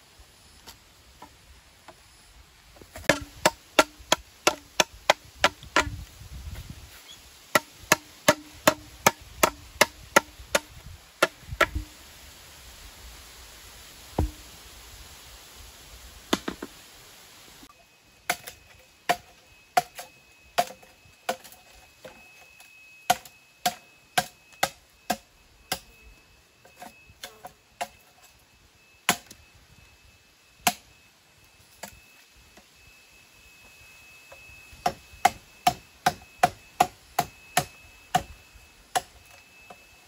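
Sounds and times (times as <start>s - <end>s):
hoe chopping into clay soil: 3.0s - 6.0s, 14.2s - 14.4s.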